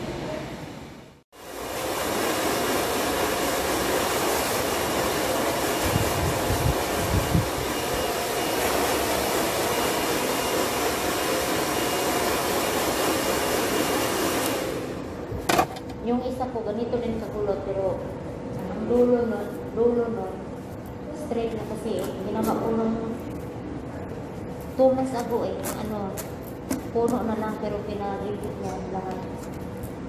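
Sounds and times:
hair dryer blowing: 0:01.4 - 0:15.3.

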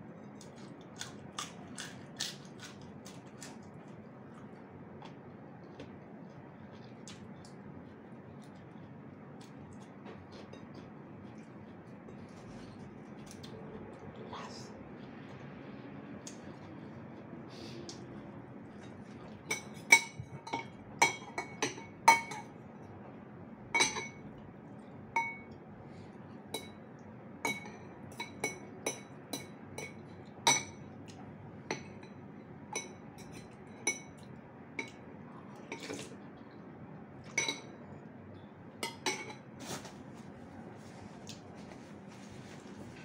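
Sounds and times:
utensil clinking against bowl: 0:23.8 - 0:24.2, 0:37.3 - 0:37.7.

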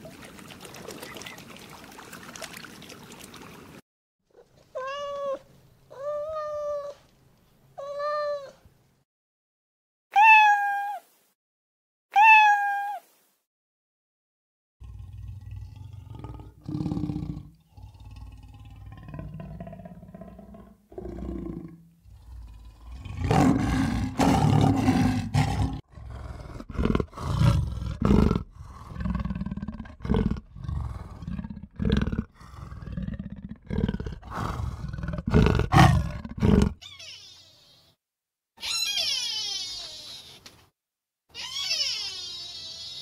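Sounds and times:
lion roaring: 0:14.8 - 0:36.8.

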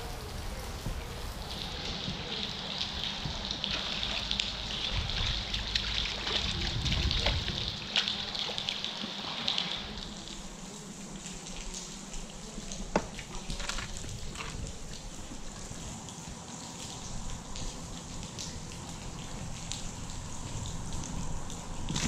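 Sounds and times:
rain pattering on water: 0:00.0 - 0:22.0
water splashing and dripping: 0:00.0 - 0:22.0.

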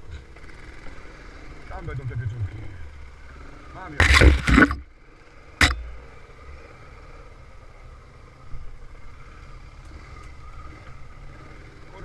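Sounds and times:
atv engine running at low revs: 0:00.0 - 0:12.0
sharp knock: 0:04.0 - 0:04.8, 0:05.6 - 0:06.0.

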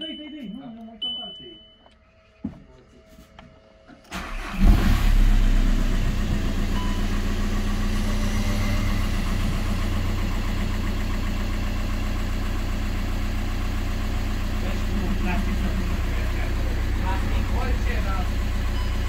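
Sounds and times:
diesel engine starting and idling: 0:03.9 - 0:19.0.

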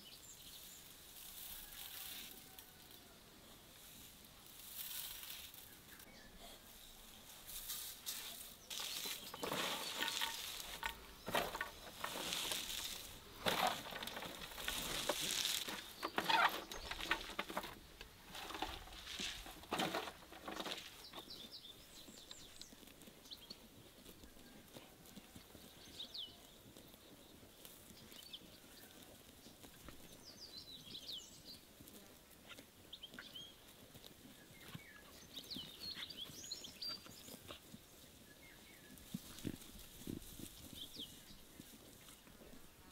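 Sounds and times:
small birds chirping: 0:05.2 - 0:07.4, 0:08.0 - 0:42.8
hands squeezing crunchy cabbage: 0:07.5 - 0:17.6.

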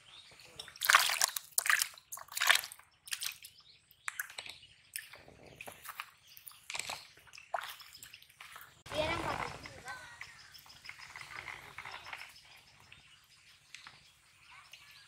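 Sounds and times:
water sloshing: 0:00.5 - 0:04.4, 0:05.0 - 0:10.2
fish splashing in basin of water: 0:00.8 - 0:04.4, 0:06.7 - 0:09.7.

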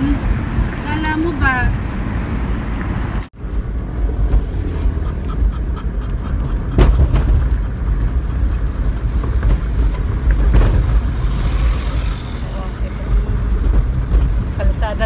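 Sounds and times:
road and engine rumble in car: 0:00.0 - 0:15.0.

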